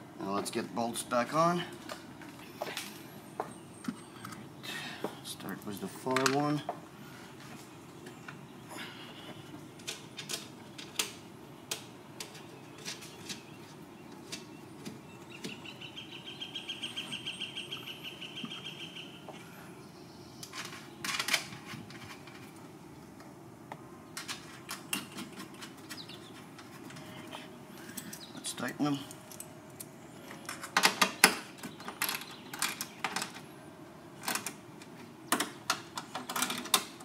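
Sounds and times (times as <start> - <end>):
clicks and knocks of metal parts: 5.7 - 6.8, 9.8 - 13.4, 20.4 - 22.6, 29.0 - 33.4, 34.2 - 37.0
bird trilling: 15.2 - 19.4.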